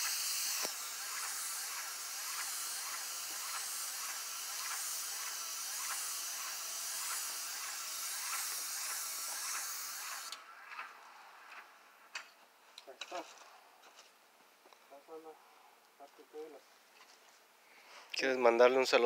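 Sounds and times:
spray gun hissing: 0.0s - 10.4s.

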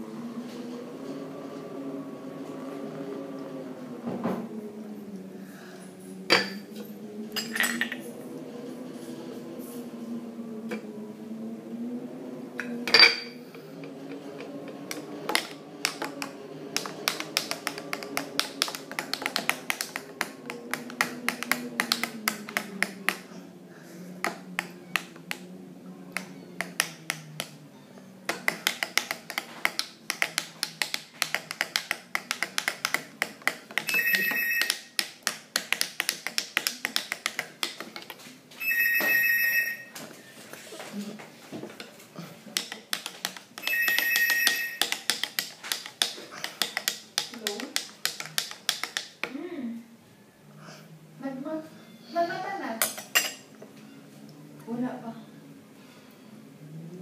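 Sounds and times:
spoon clinking in glass: 12.9s - 13.4s.

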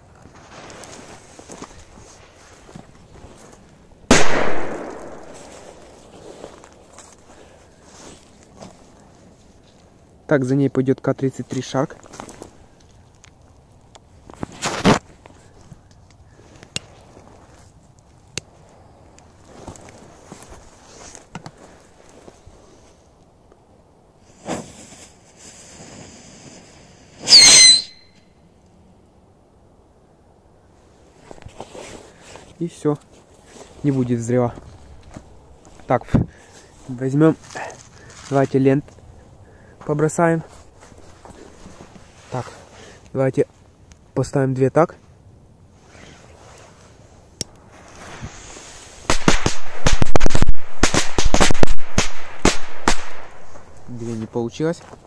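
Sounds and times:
soft hiss: 0.0s - 55.0s
firecracker fuse hissing: 24.2s - 27.9s, 47.7s - 54.0s
screech with falling whistle: 27.2s - 28.2s
firecrackers banging: 49.1s - 53.6s.

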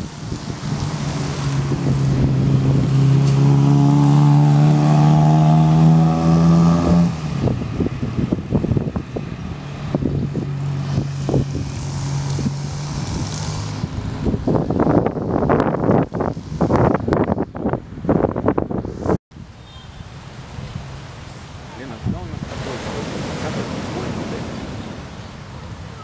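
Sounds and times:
wind buffeting microphone: 0.0s - 19.2s.

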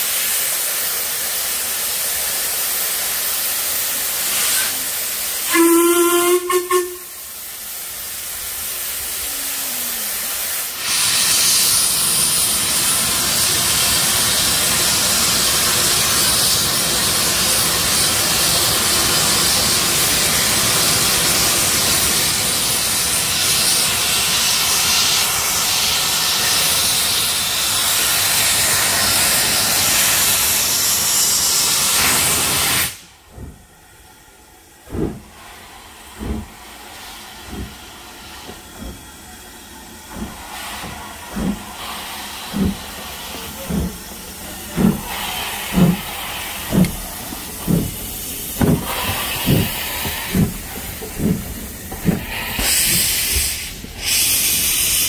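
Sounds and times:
steam locomotive exhaust chuffs: 0.0s - 9.4s, 10.0s - 55.0s
steam venting hiss: 0.0s - 55.0s
steam locomotive whistle: 4.4s - 7.2s.

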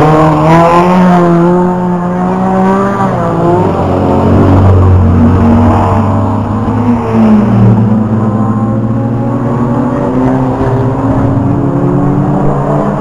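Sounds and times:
racing car engines: 0.0s - 13.0s.

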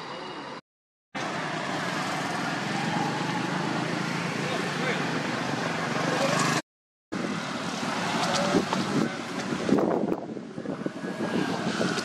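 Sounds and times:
wind buffeting microphone: 7.2s - 12.0s.

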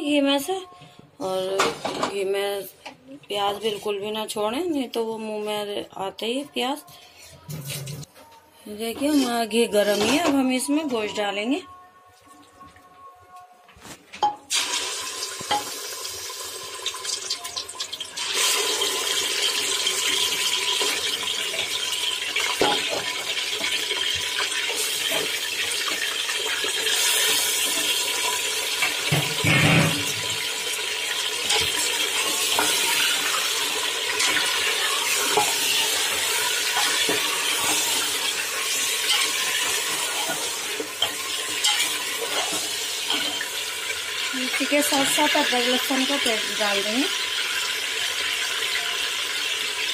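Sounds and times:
meat sizzling in hot fat: 14.5s - 49.9s.

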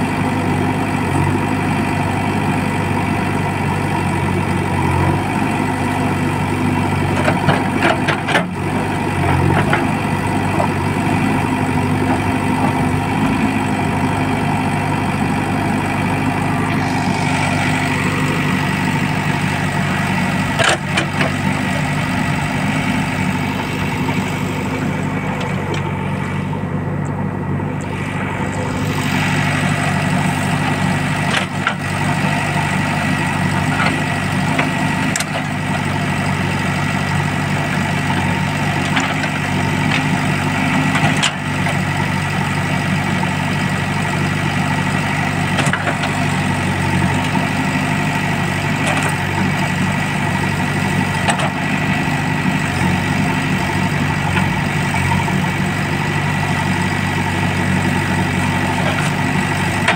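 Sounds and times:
diesel engine running: 0.0s - 59.9s
high hydraulic whine: 15.8s - 33.8s.

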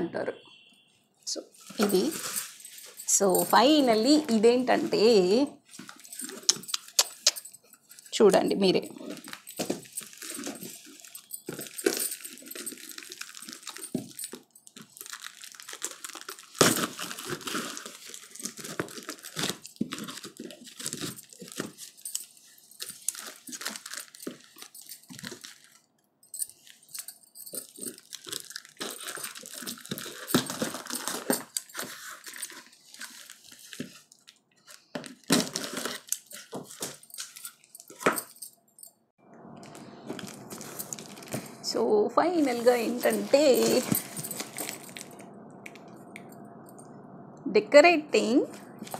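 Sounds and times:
plastic and cardboard ripping: 9.0s - 14.1s, 14.8s - 22.0s, 27.9s - 34.0s, 34.9s - 37.4s.

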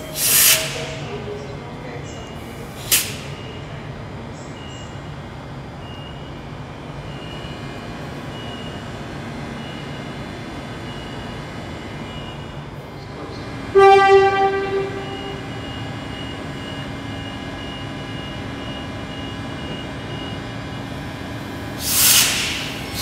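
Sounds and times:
bursts of hiss: 0.0s - 1.0s, 21.8s - 23.0s
train humming at platform: 0.0s - 23.0s
train horn blast: 13.7s - 15.6s.

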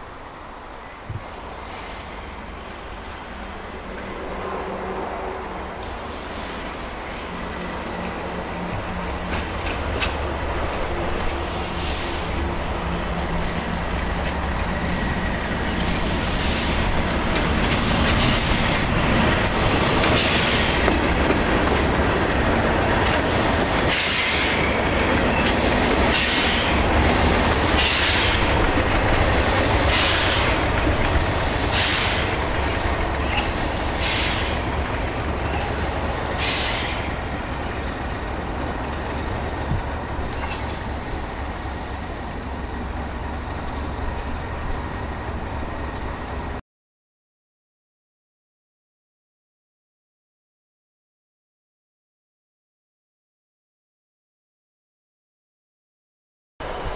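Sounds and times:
train wheels on track: 0.0s - 46.6s, 56.6s - 56.9s
diesel locomotive engine running: 4.6s - 46.6s.

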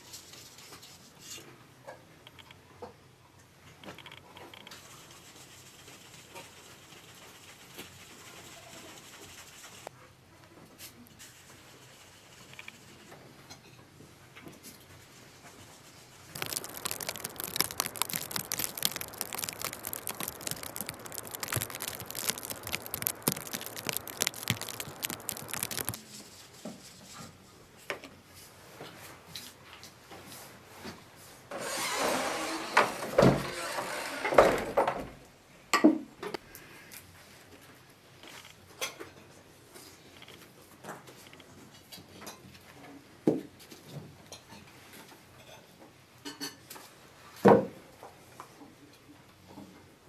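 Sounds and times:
flour sieve rustling rattle: 15.2s - 26.0s.

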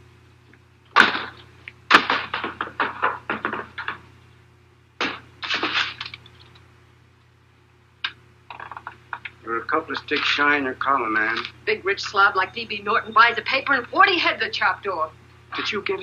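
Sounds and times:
old film soundtrack hum: 0.0s - 16.0s
sharp knocks: 1.0s - 4.0s, 5.0s - 6.1s.

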